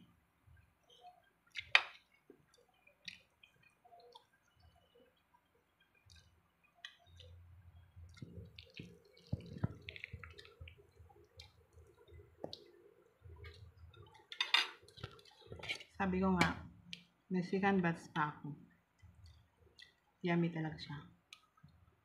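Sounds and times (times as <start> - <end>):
cutlery tapping on a plate: 14.4 - 14.8.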